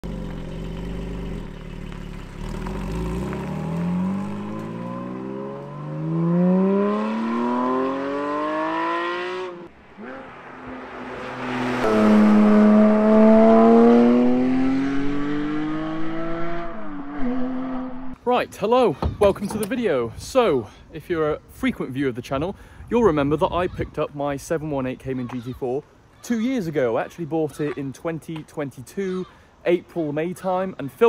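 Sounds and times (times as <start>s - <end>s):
car engine accelerating: 0.0s - 18.2s.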